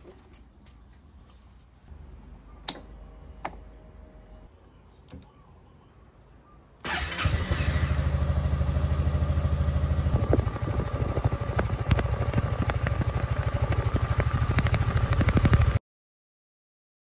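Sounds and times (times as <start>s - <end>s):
scooter engine idling: 6.8s - 15.8s.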